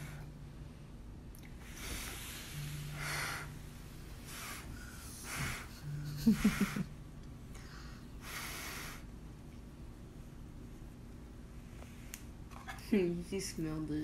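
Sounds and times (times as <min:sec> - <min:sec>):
child blowing puffs of breath: 0:01.6 - 0:03.6, 0:04.2 - 0:06.9, 0:07.6 - 0:09.1.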